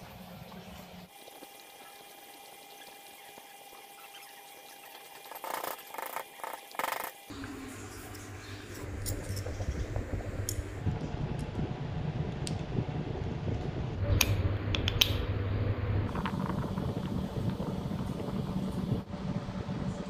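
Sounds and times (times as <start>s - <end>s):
small electric motors humming: 0.6s - 10.9s.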